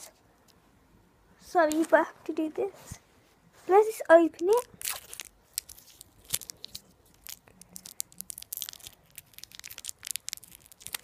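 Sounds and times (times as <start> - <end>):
wrapper crinkling and tearing: 4.5 - 11.0.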